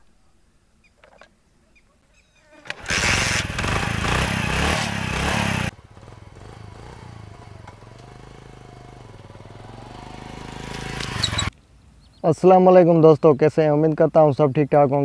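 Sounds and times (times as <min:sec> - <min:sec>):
motorcycle approaching: 0:02.6 - 0:11.5
small motorcycle engine running: 0:02.6 - 0:11.5.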